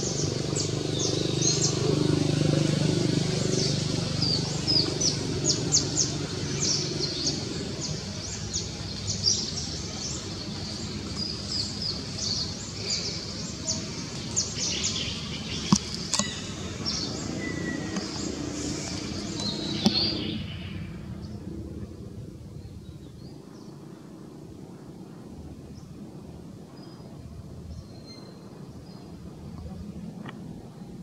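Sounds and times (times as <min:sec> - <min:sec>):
birds chirping: 0:00.0 - 0:24.4
low background noise: 0:00.0 - 0:31.0.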